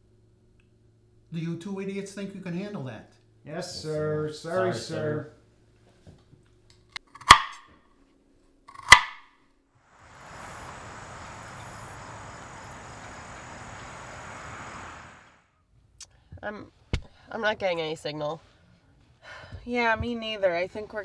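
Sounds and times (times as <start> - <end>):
kitchen knife chopping on board: 7.2 - 7.6
car driving along road: 9.9 - 15.5.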